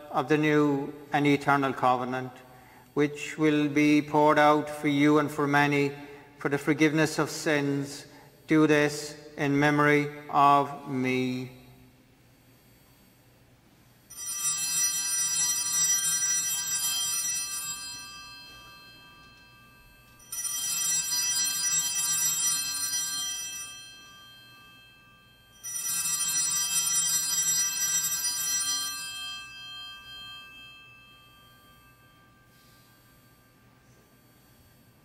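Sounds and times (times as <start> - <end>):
altar bells ringing: 14.1 - 35.0.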